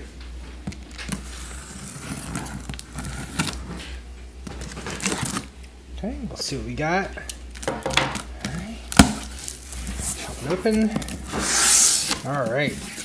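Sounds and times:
cardboard scraping and rustling: 0.8s - 5.5s, 8.5s - 13.0s
knife slitting packing tape: 1.0s - 3.6s, 11.0s - 13.0s.

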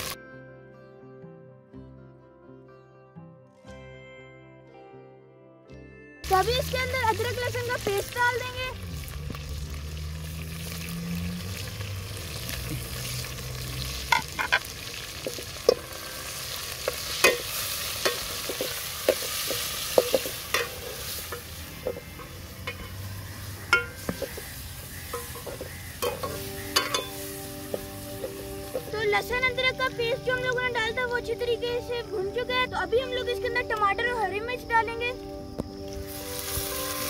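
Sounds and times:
chicken sizzling in oil: 6.2s - 31.2s, 36.0s - 37.0s
ladle scraping a metal pot: 16.9s - 27.3s.

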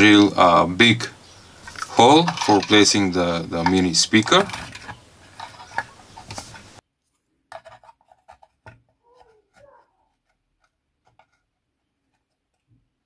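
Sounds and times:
metal plate tapping and rubbing: 0.0s - 6.8s, 7.5s - 12.8s
small clicks and scrapes: 1.6s - 12.8s.

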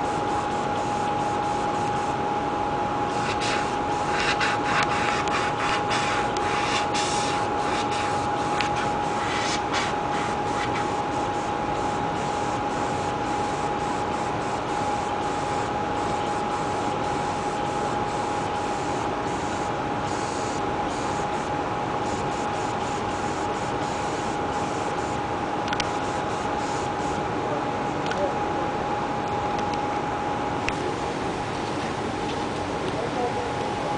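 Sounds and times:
steady noise with thin whine: 0.0s - 33.9s
airbrush hissing: 3.1s - 17.5s, 18.1s - 25.1s, 25.8s - 27.2s.

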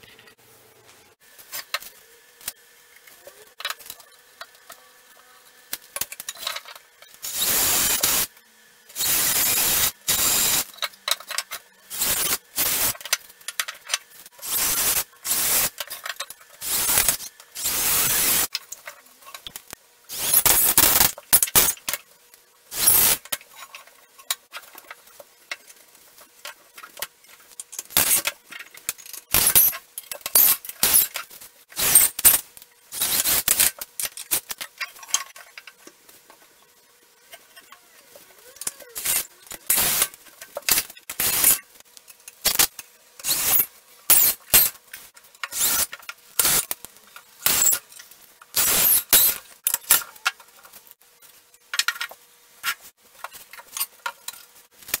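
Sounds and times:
harsh noisy power tool bursts: 43.2s - 44.7s, 45.5s - 46.6s.

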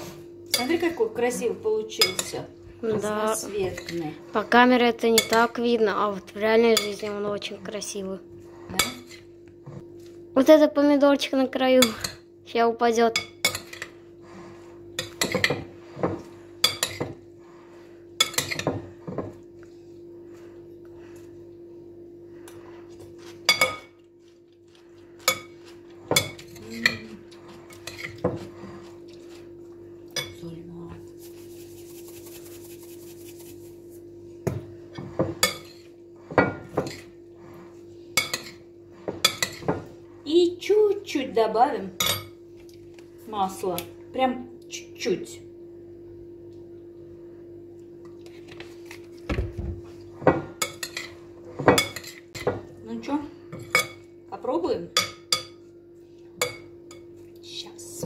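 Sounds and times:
cutlery clinking against glass bowl: 13.2s - 13.9s, 23.2s - 24.1s, 50.3s - 52.7s, 55.0s - 55.6s.

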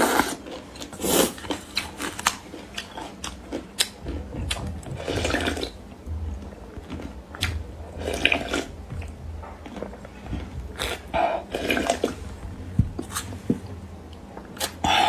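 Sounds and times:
wet chewing and slurping noodles: 0.0s - 5.8s, 6.9s - 12.3s.

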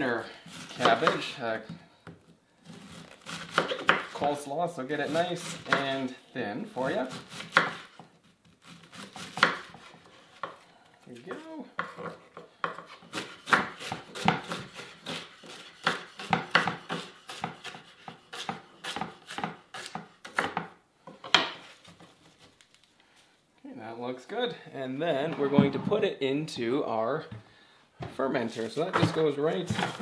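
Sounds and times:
knife slicing cabbage on board: 0.5s - 1.2s, 2.6s - 4.2s, 7.0s - 10.6s, 12.7s - 20.7s, 29.0s - 30.0s.

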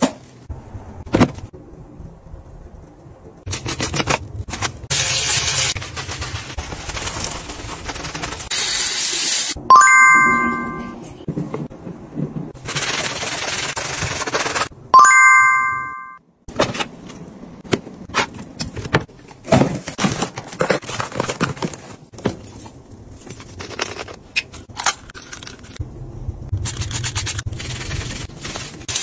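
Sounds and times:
bell-like chime: 9.7s - 11.0s, 15.0s - 16.2s.

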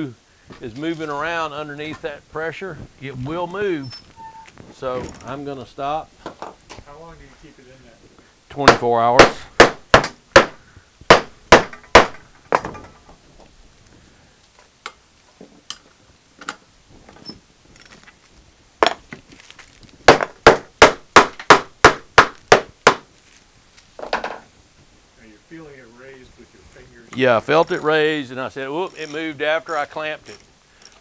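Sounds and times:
mallet striking wooden board: 8.6s - 12.2s, 20.1s - 23.0s.

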